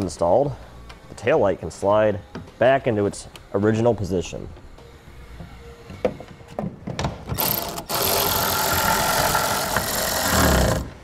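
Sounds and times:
power ratchet whine: 0:07.3 - 0:11.0.

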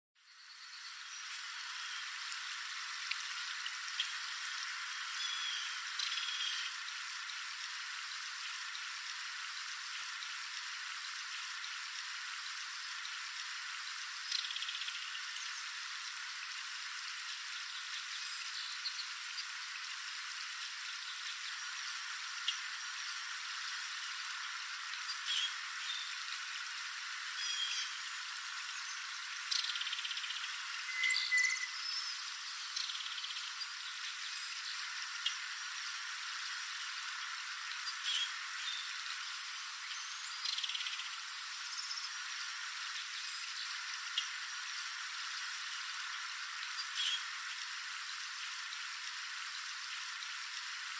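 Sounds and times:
steady hiss: 0:00.2 - 0:50.9
faint ticks: 0:02.2 - 0:04.2.

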